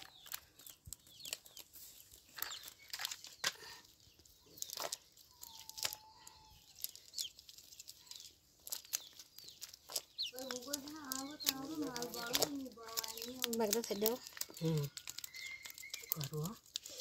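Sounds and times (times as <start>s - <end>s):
net rustling on concrete: 0.0s - 17.0s
sharp clicks and slaps: 8.7s - 16.3s.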